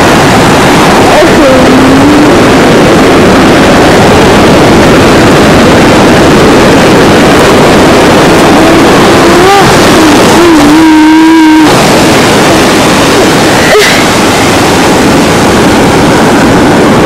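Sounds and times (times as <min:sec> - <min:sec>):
surf rushing: 0:00.0 - 0:17.0
wind on microphone: 0:00.0 - 0:17.0
faint voice calling out: 0:09.1 - 0:11.8.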